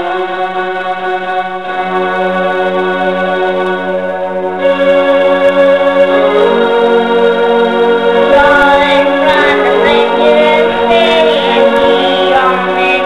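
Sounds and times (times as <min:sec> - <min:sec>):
electronic keyboard organ voice: 0:00.0 - 0:13.0.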